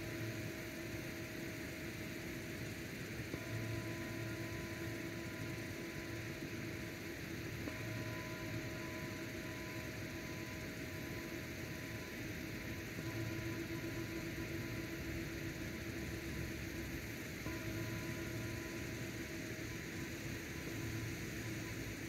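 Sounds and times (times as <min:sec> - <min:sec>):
faint tonal hum: 0:00.0 - 0:22.0.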